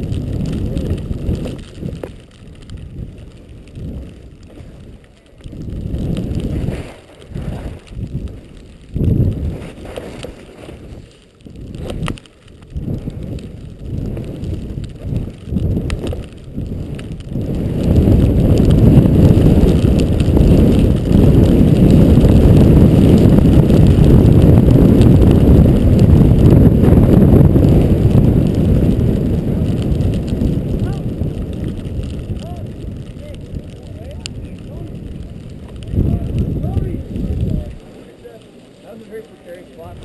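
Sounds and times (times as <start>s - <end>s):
wind buffeting microphone: 0.0s - 38.4s, 39.5s - 40.0s
skis hissing through powder: 6.2s - 8.6s, 9.2s - 12.2s.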